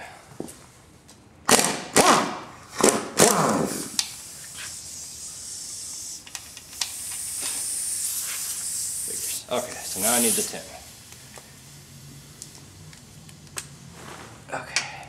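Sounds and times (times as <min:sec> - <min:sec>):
steady hiss: 0:03.6 - 0:15.0.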